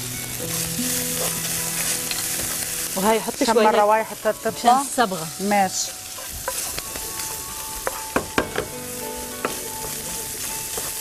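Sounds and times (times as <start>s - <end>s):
meat sizzling in a frying pan: 0.0s - 11.0s
wooden spoon scraping a pan: 5.5s - 8.0s.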